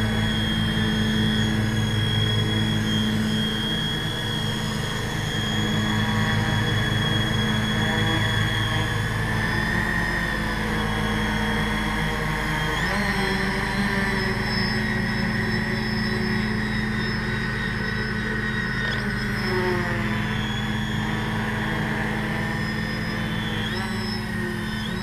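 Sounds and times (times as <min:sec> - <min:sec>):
drone motors and propellers humming: 0:00.0 - 0:25.0
high motor whine: 0:00.0 - 0:25.0.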